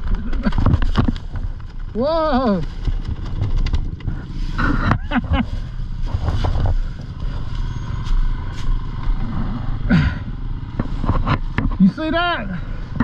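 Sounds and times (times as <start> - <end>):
knocks and clatter: 0.0 - 7.7, 10.7 - 11.9
dirt bike engine idling unevenly: 1.2 - 13.0.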